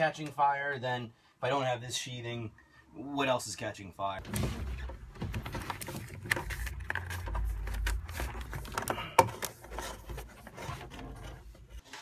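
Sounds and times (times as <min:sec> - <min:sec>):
plastic wire sheathing scraping: 0:04.3 - 0:12.0.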